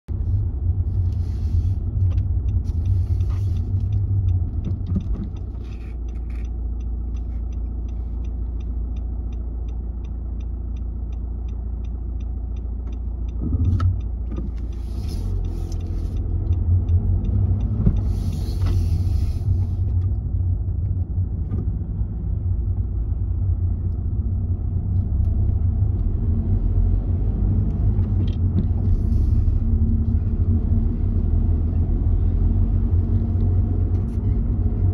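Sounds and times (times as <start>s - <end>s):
car engine and tyre rumble: 0.0s - 34.9s
turn indicator ticking: 0.1s - 34.9s.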